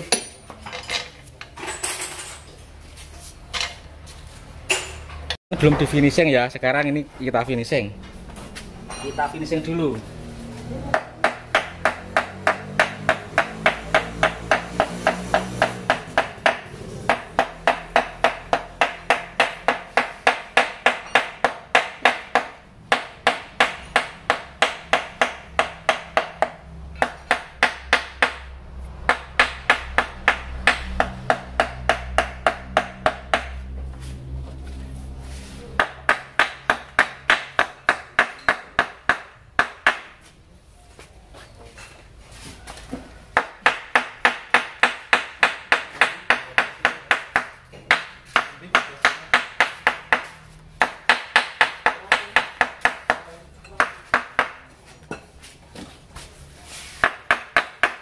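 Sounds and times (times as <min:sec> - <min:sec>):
hammer tapping on metal: 0:10.9 - 0:28.5, 0:29.1 - 0:33.6, 0:35.8 - 0:40.1.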